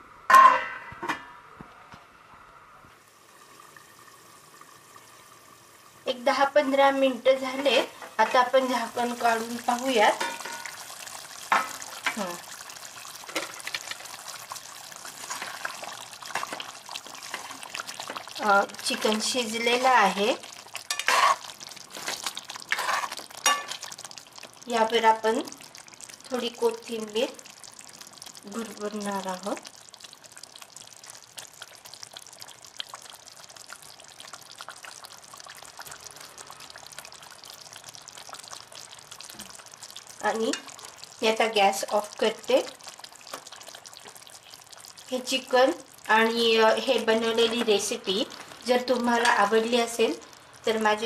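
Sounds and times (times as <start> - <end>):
curry boiling in a pot: 2.9 - 51.0
ladle stirring gravy: 9.0 - 24.7, 27.4 - 28.5, 29.6 - 41.2, 42.2 - 45.1.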